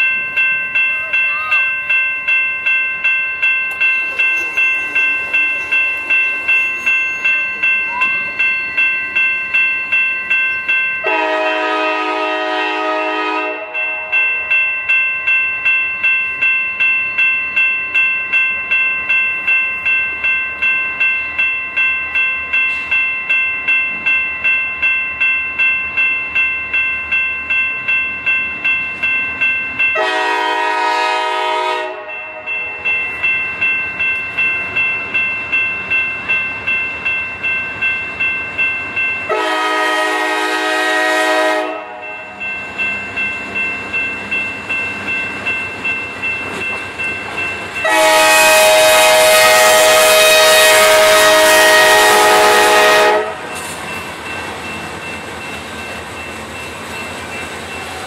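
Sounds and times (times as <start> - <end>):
crossing bell ringing: 0.0 - 58.0
locomotive air horn blasts: 11.0 - 14.2, 30.0 - 32.5, 39.3 - 42.1, 47.8 - 53.5.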